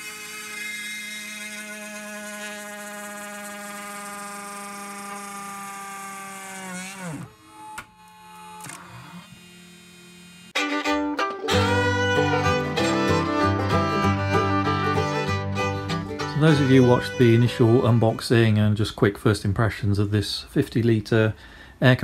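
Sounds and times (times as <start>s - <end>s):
router spindle whining: 0.0s - 10.6s, 11.5s - 18.5s.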